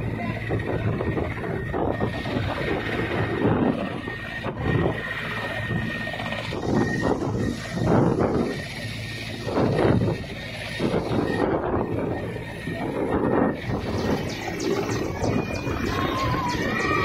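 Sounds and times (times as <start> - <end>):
engine and rotor hum: 0.0 - 17.0
helicopter turbine whine: 0.0 - 17.0
rushing noise: 10.8 - 17.0.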